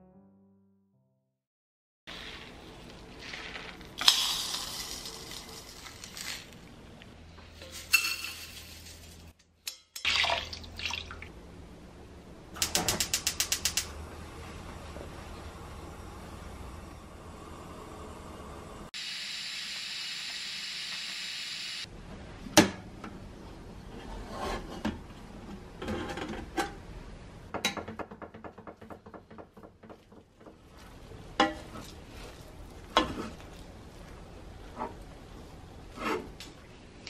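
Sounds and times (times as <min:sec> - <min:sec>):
pressure cooker hissing steam: 0:19.0 - 0:21.9.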